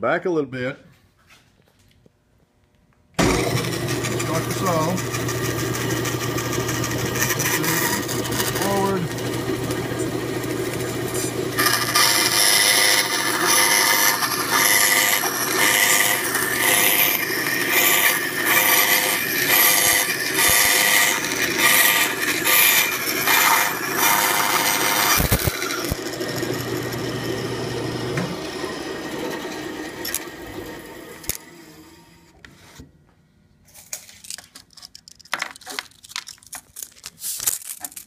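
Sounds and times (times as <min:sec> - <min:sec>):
band saw cutting wood: 0:03.2 - 0:32.3
saw motor hum: 0:03.2 - 0:32.4.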